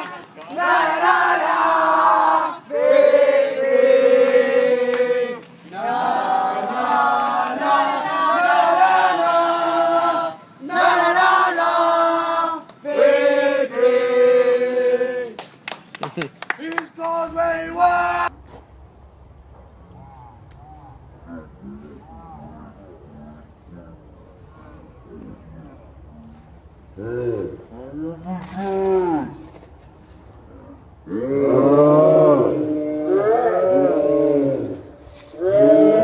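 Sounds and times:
group singing a football chant: 0:00.5 - 0:15.4.

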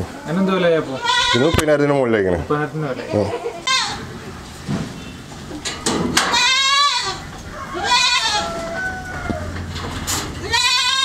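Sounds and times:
young goat bleating: 0:00.3 - 0:01.7, 0:02.8 - 0:04.1, 0:06.2 - 0:09.5, 0:10.4 - 0:11.0.

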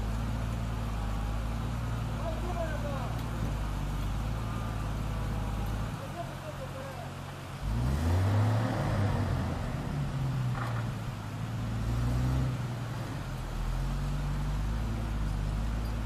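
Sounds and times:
rushing river water: 0:00.0 - 0:16.0
heavy truck engine revving: 0:07.4 - 0:16.0.

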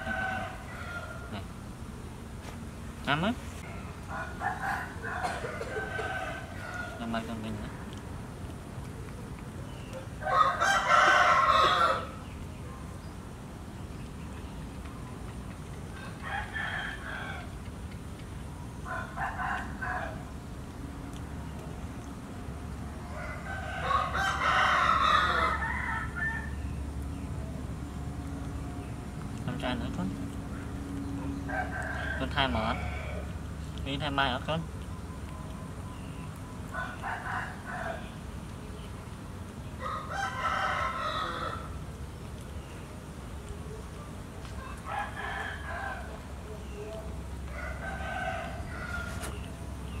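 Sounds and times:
rooster crowing: 0:00.0 - 0:01.4, 0:03.6 - 0:07.4, 0:10.2 - 0:12.2, 0:16.0 - 0:17.6, 0:18.8 - 0:20.3, 0:23.0 - 0:26.8, 0:31.4 - 0:33.4, 0:36.7 - 0:38.2, 0:39.8 - 0:41.8, 0:44.6 - 0:46.3, 0:47.4 - 0:49.4
steady low rumble: 0:26.5 - 0:31.9.

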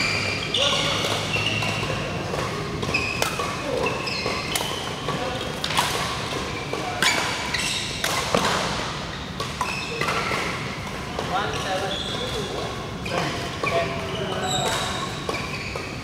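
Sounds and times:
rackets striking shuttlecock: 0:00.8 - 0:12.8.

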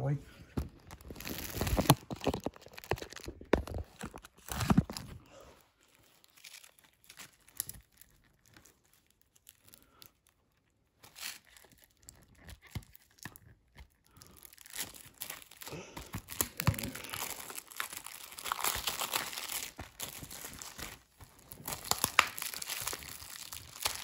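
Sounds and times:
plastic wrap crinkling: 0:00.4 - 0:24.0.

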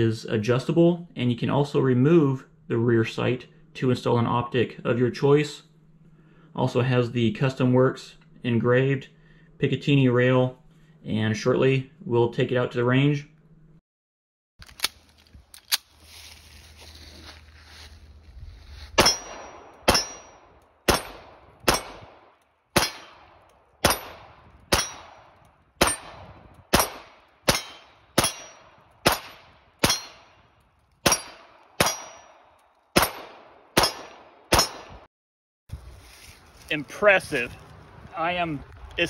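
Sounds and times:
pistol shots: 0:19.0 - 0:30.4, 0:31.0 - 0:35.0.

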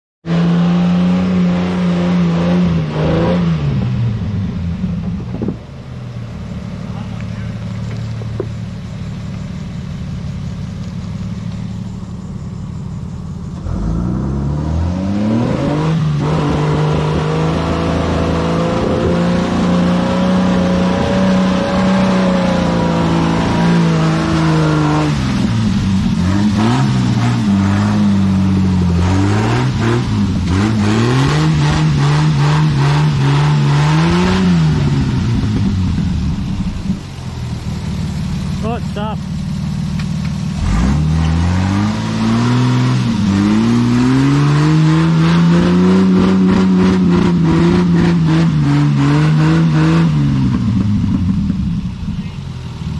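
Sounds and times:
four-wheel drive engine revving: 0:00.2 - 0:52.9.

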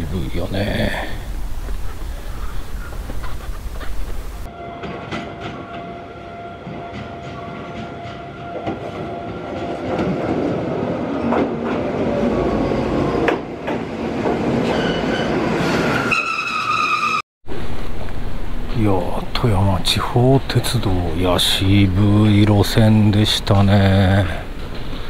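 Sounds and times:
electric train whine: 0:03.6 - 0:25.0
train wheels squealing: 0:12.2 - 0:13.4, 0:14.6 - 0:17.2.

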